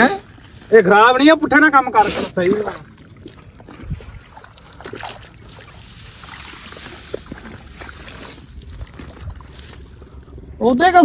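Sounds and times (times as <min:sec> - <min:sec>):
muddy water sloshing and trickling: 0:00.0 - 0:10.8
splashes and squelches in mud: 0:02.1 - 0:10.5.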